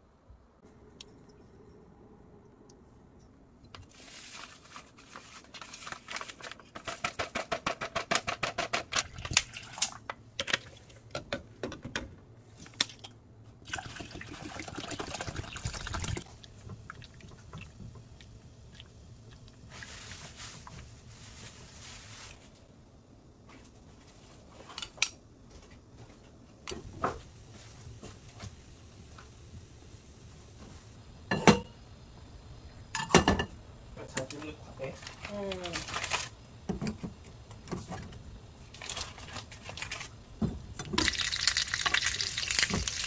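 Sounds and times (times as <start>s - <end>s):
liquid pouring: 13.7s - 17.7s, 41.0s - 43.0s.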